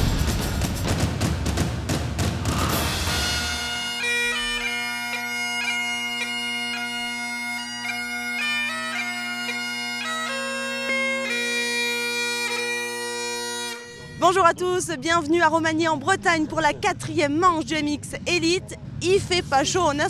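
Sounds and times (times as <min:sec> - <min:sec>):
bagpipe music: 0:02.9 - 0:15.9.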